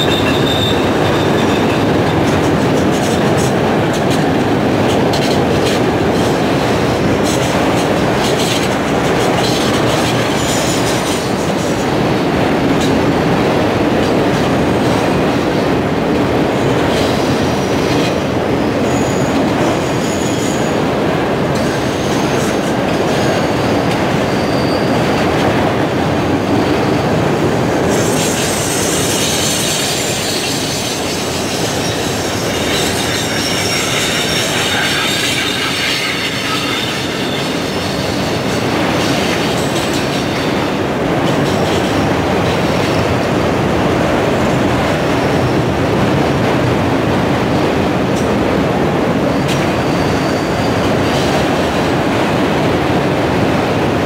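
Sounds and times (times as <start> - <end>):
high wheel squeals: 0.0 - 1.9, 24.2 - 25.0, 27.9 - 40.4, 49.3 - 51.3
train wheels rumbling on rail: 0.0 - 54.0.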